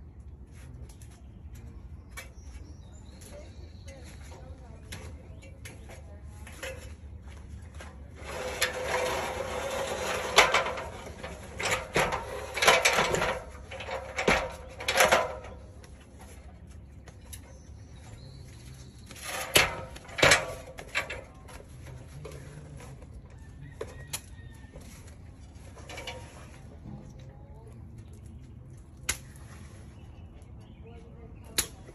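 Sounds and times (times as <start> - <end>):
metal ladder knocks and clanks: 7.8 - 16.1, 19.1 - 22.3, 25.7 - 26.8
rooster crowing: 23.2 - 25.1.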